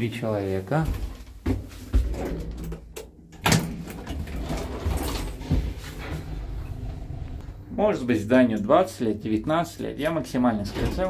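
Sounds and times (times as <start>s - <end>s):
low steady hum: 3.5s - 9.1s.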